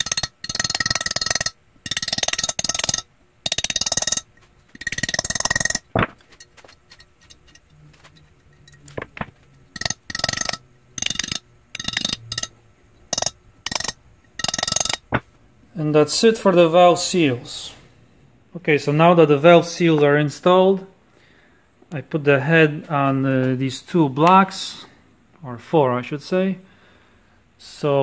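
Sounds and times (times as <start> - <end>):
small hammer tapping on metal: 0.0 - 12.5, 13.1 - 15.2.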